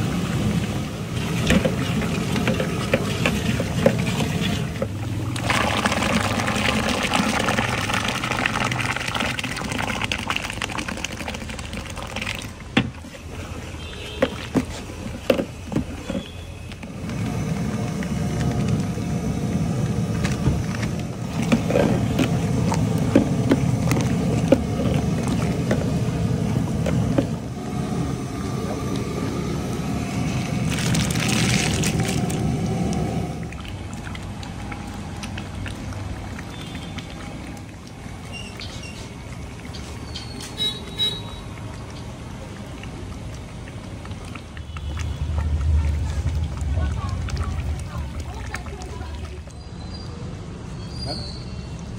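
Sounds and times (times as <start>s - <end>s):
gas burner roar: 0.0s - 10.7s, 16.7s - 35.5s
greens poured into hissing gravy: 27.7s - 33.5s.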